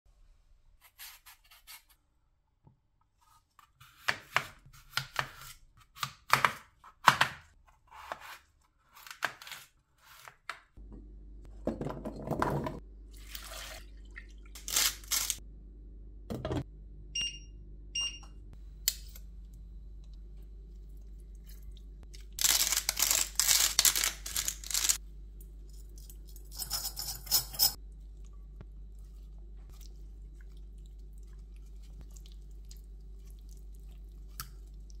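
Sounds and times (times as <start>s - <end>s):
electric cooktop hum: 2.0s - 35.0s
peeler scraping potato skin: 22.4s - 25.0s.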